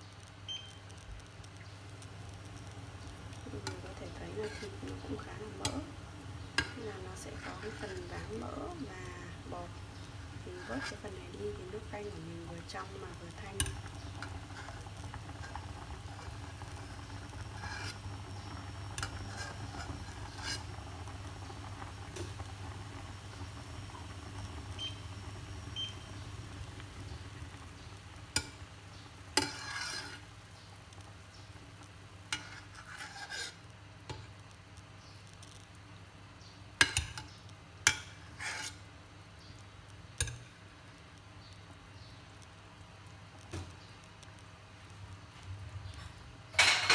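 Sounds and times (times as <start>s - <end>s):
soup bubbling in a pot: 0.1s - 46.9s.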